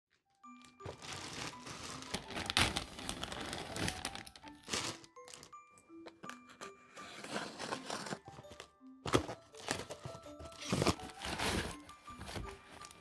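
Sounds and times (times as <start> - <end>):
plastic mailer bag crinkling: 0.7 - 5.6, 9.2 - 13.0.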